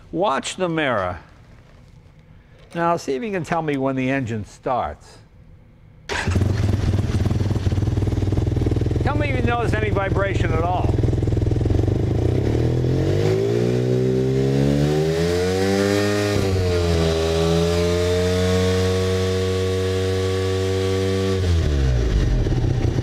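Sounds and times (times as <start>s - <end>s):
motorcycle engine idling and revving: 6.1s - 23.0s.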